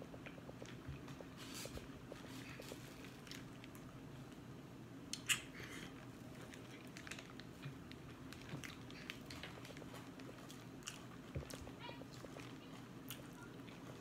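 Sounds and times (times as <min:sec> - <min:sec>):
faint steady hum: 0:00.0 - 0:14.0
lip smacks: 0:05.1 - 0:05.6.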